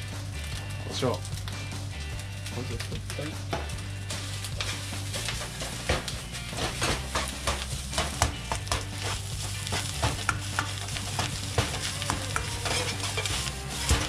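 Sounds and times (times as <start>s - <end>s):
food sizzling: 0.0s - 14.0s
ladle scraping and clanking on wok: 3.5s - 14.0s.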